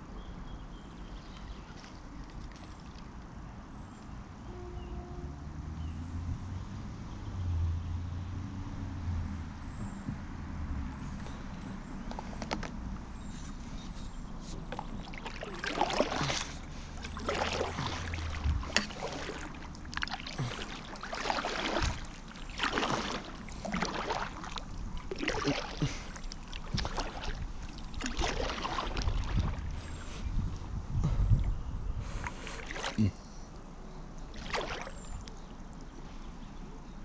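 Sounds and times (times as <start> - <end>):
paddle splashing through water: 1.2 - 3.1, 13.2 - 30.6, 31.4 - 33.1, 34.2 - 35.9.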